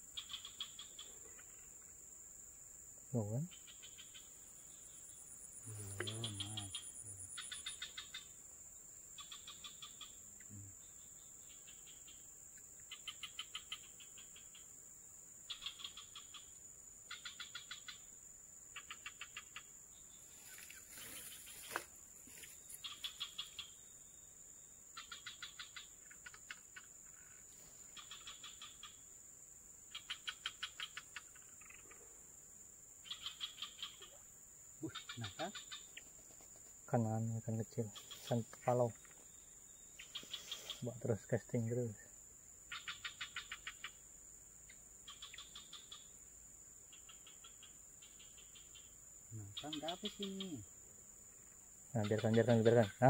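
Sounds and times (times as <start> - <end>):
high insect drone: 0.0 - 53.0.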